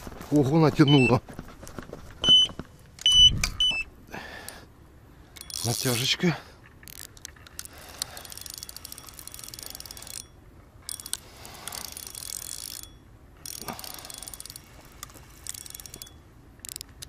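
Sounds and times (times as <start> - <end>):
fishing reel clicking rapidly: 5.4 - 6.2, 6.9 - 10.3, 10.9 - 16.9.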